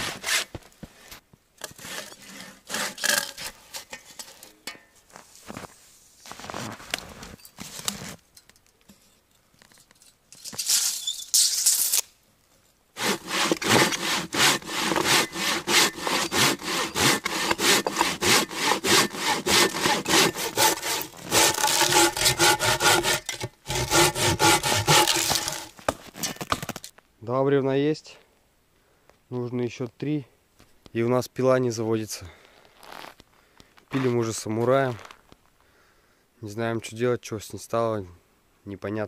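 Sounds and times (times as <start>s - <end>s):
hand saw cutting a log: 0.0s - 0.5s, 1.6s - 3.6s, 13.0s - 25.7s
rasping: 13.0s - 25.7s
scraping: 13.0s - 26.9s.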